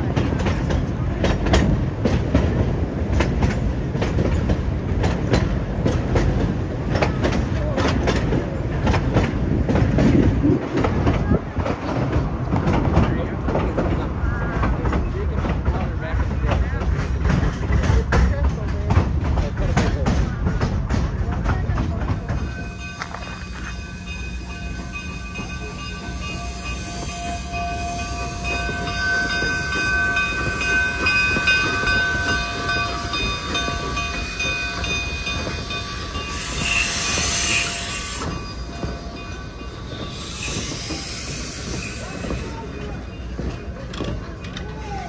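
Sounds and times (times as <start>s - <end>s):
train rumbling past: 0.0s - 45.0s
steam hissing: 35.5s - 42.7s.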